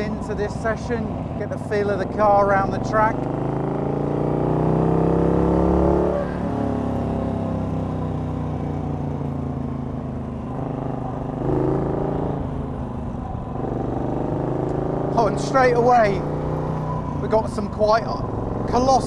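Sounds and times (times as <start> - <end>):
v-twin engine running: 6.5 - 19.0.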